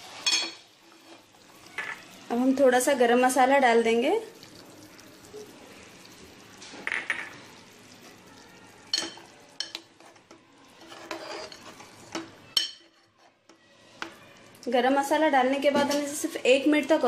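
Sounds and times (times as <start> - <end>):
curry bubbling: 0.0 - 17.0
spoon scraping metal pot: 0.2 - 2.0, 8.9 - 14.2.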